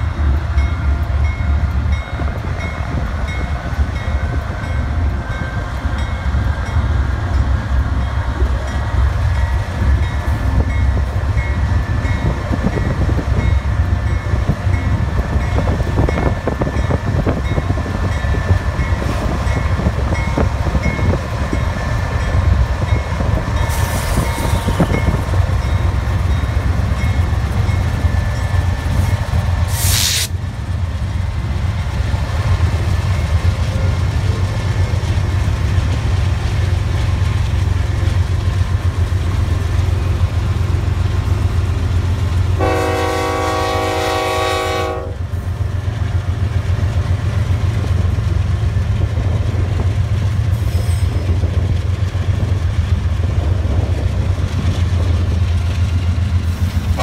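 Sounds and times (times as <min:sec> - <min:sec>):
locomotive engine rumble: 0:00.0 - 0:57.0
sharp hiss: 0:29.6 - 0:30.4.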